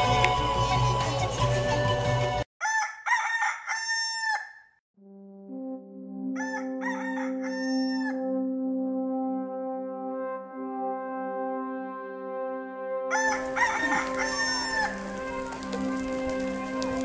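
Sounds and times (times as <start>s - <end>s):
rooster crowing: 2.6s - 4.7s, 6.4s - 8.2s, 13.1s - 15.8s
sustained horn-like music chord: 5.0s - 17.0s.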